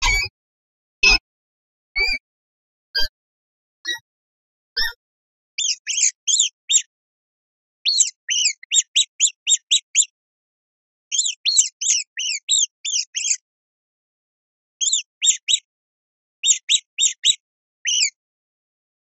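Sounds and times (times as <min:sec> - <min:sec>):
rodent squeaking: 0:05.6 - 0:06.9, 0:07.8 - 0:10.1, 0:11.1 - 0:13.4, 0:14.8 - 0:15.7, 0:16.4 - 0:18.2.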